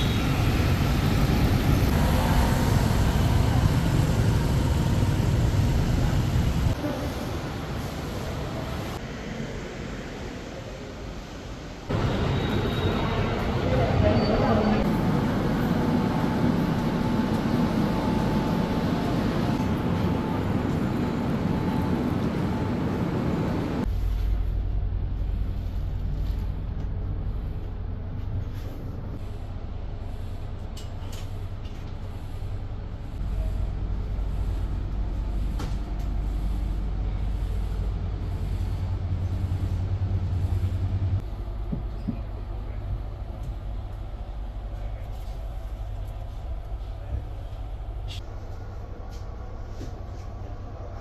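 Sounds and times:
station platform noise: 0.0s - 23.9s
train compartment low hum: 0.0s - 51.0s.

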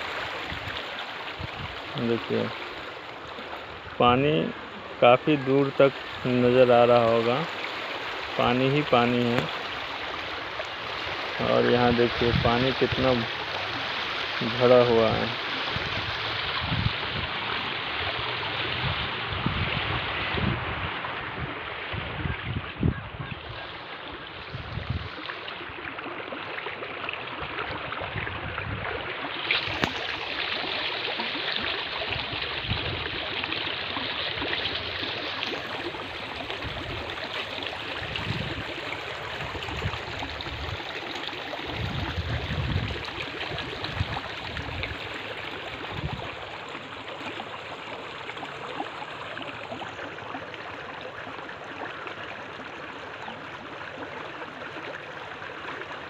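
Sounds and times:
wind buffeting microphone: 0.0s - 2.0s, 15.6s - 17.6s, 18.7s - 25.2s, 27.4s - 29.1s, 32.1s - 33.3s, 36.4s - 37.2s, 37.9s - 40.9s, 41.6s - 46.5s
floodwater rushing: 0.0s - 56.0s.

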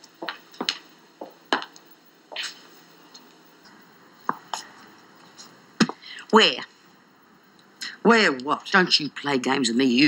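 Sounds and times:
footsteps: 0.0s - 6.0s.

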